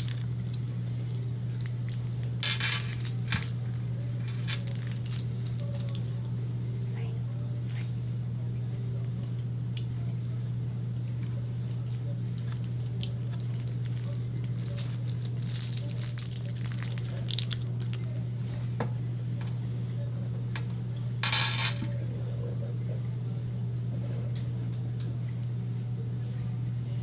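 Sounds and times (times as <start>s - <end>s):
wrapper crinkling: 0.0s - 6.2s, 11.4s - 18.1s
steady low hum: 0.0s - 27.0s.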